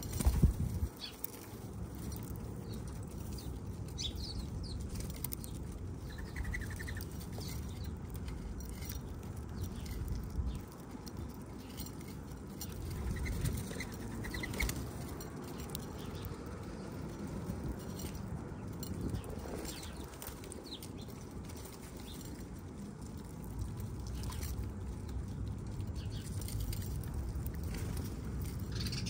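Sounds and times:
bird wings fluttering: 0:00.0 - 0:01.0.

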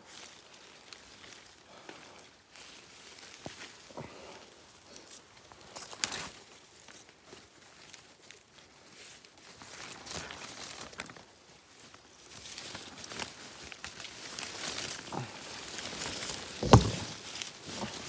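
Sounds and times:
leaves and twigs rustling: 0:00.0 - 0:18.0
heavy thump: 0:16.6 - 0:17.2.

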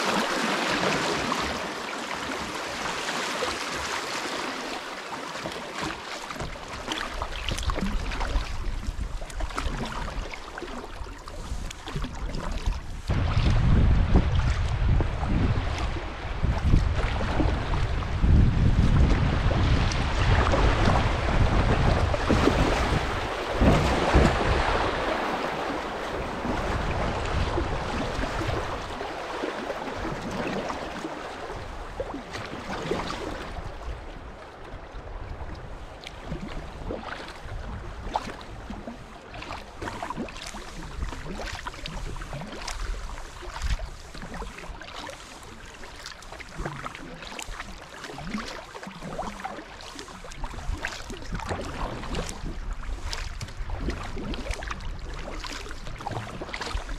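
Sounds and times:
river water rushing: 0:00.0 - 0:07.0, 0:19.6 - 0:33.4
paddle drips and splashes: 0:00.0 - 0:56.9.

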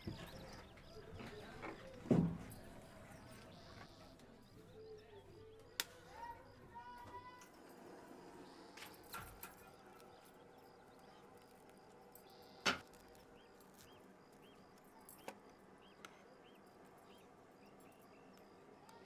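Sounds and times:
faint high chirps: 0:08.3 - 0:19.0.

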